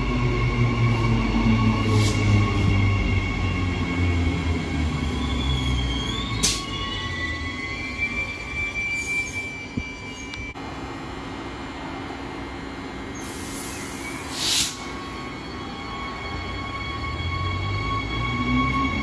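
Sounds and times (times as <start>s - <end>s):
high squealing brakes: 0.0s - 10.6s, 13.1s - 19.0s
train low rumble: 0.0s - 19.0s
bursts of air hiss: 13.2s - 14.9s.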